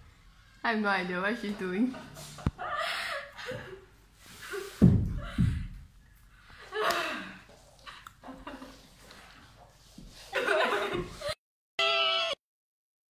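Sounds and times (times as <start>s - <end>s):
heavy thud: 4.8s - 5.8s.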